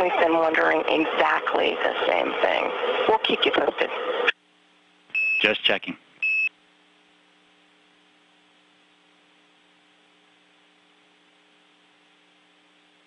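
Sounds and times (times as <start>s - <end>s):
faint electrical hum with hiss: 4.3s - 13.0s.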